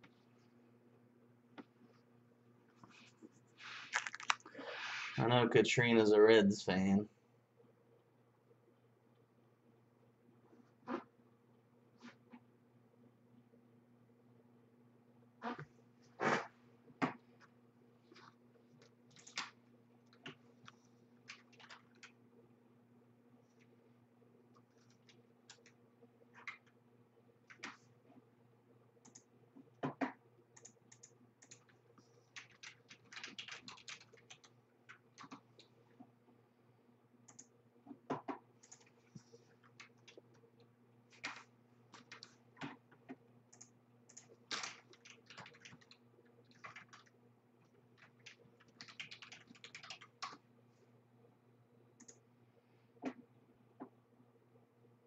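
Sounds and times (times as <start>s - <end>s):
low electrical hum: 0.0s - 55.0s
typing on a computer keyboard: 19.1s - 20.4s, 21.2s - 22.2s, 24.8s - 25.8s, 30.6s - 35.7s, 38.6s - 38.9s, 41.1s - 42.8s, 43.6s - 47.1s, 48.0s - 50.4s.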